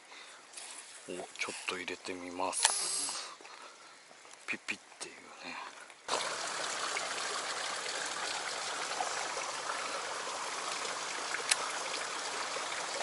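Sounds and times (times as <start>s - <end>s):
stream running over rocks: 5.1s - 13.0s.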